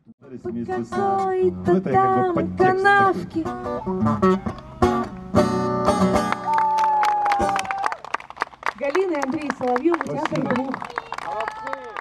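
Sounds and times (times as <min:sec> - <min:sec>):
person singing: 0:00.4 - 0:05.0
acoustic guitar strumming: 0:00.4 - 0:06.5.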